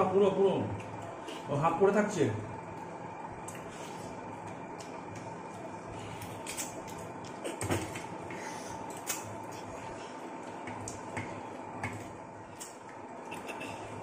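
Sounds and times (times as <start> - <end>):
faint steady hum: 0.0 - 14.0
people chewing and sucking mango: 3.3 - 11.2.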